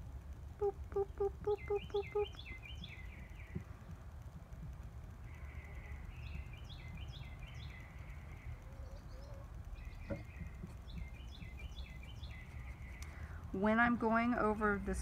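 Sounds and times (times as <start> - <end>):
low background rumble: 0.0 - 15.0
bird chirping: 0.6 - 4.0, 5.2 - 13.4.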